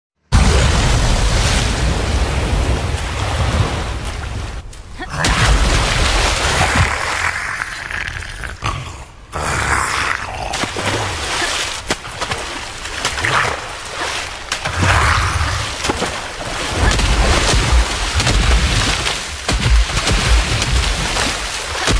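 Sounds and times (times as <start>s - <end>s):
deep rumbling booms: 0.3s - 7.2s.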